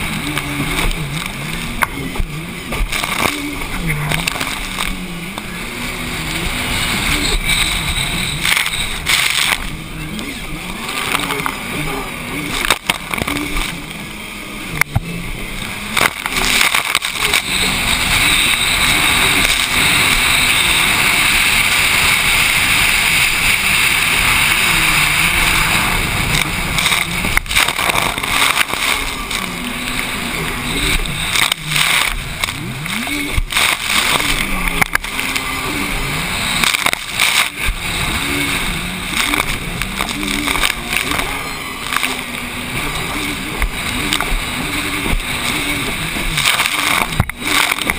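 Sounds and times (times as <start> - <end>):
jet ski engine running hard: 0.0 - 47.9
wind and water spray rushing: 15.0 - 47.9.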